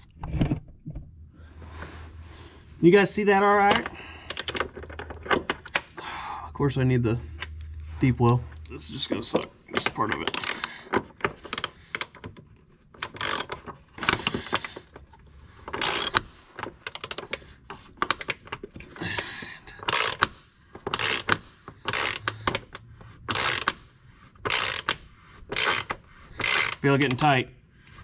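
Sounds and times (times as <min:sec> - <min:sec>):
socket ratchet clicking: 0:04.3 - 0:04.8, 0:10.1 - 0:10.7, 0:11.4 - 0:12.2, 0:13.0 - 0:13.6, 0:15.7 - 0:17.4, 0:19.8 - 0:20.3, 0:20.9 - 0:23.8, 0:24.4 - 0:27.3.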